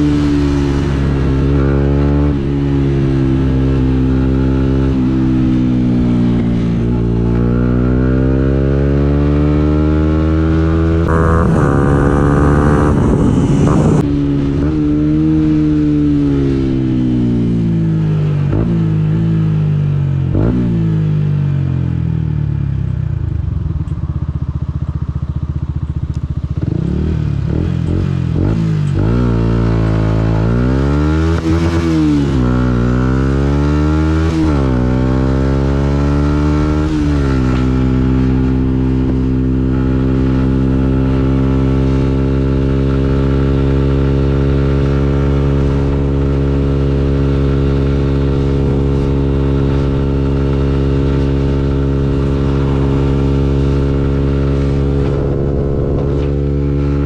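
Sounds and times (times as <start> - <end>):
motorcycle engine revving: 0.0 - 57.0
wind rush: 11.0 - 17.0, 48.5 - 57.0.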